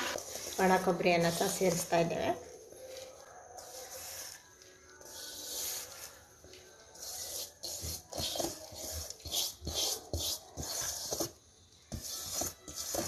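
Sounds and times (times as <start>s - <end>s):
coconut scraped from pan: 0.0s - 1.9s, 7.0s - 11.4s.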